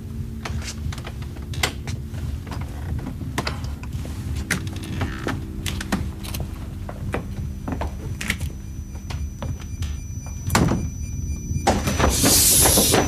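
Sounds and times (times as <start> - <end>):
low steady hum: 0.0 - 13.0
knocks and footsteps: 0.3 - 13.0
door opening: 7.4 - 13.0.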